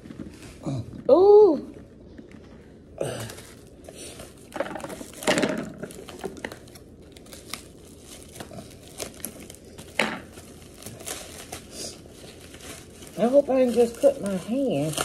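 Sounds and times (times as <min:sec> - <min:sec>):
paper crinkling and tearing: 0:05.8 - 0:15.0.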